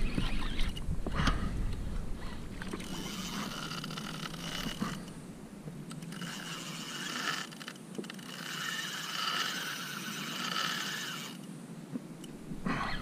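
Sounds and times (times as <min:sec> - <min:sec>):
fishing reel drag whirring: 0:00.0 - 0:00.8, 0:02.2 - 0:05.2, 0:05.9 - 0:11.5.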